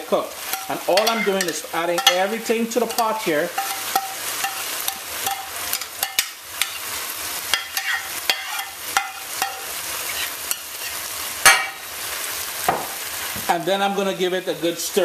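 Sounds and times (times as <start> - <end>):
chicken sizzling in a pot: 0.0 - 15.0
metal spoon scraping a bowl: 0.5 - 2.3, 7.5 - 11.0.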